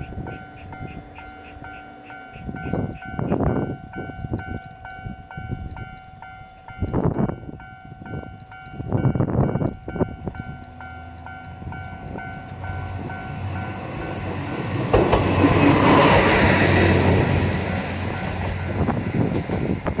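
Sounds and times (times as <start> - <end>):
level-crossing alarm bell ringing: 0.0 - 14.8
diesel railcar passing: 0.0 - 20.0.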